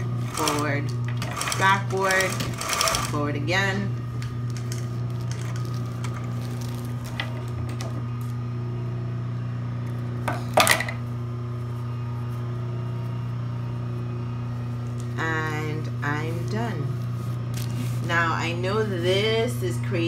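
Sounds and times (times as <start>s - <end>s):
sewing machine motor humming: 0.0s - 20.0s
fabric rustling: 4.1s - 7.6s, 16.1s - 19.3s.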